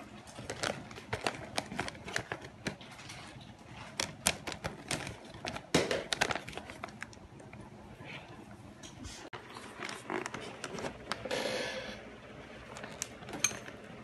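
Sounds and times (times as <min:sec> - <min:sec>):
wrapping paper crinkling: 0:00.0 - 0:07.6, 0:09.4 - 0:11.2.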